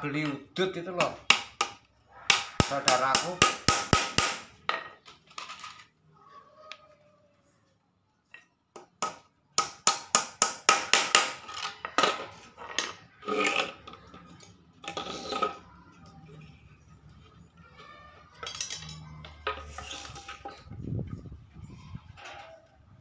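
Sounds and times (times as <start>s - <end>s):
wooden parts clattering: 4.7s - 6.0s, 18.3s - 20.9s.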